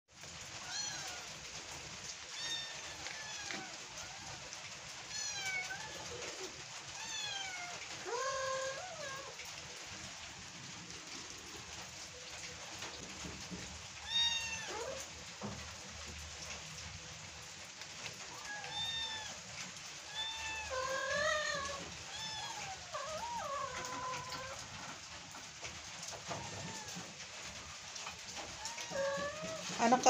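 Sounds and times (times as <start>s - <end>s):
cats meowing: 0.5s - 1.5s, 2.3s - 9.4s, 14.0s - 15.1s, 18.2s - 25.0s, 26.0s - 30.0s.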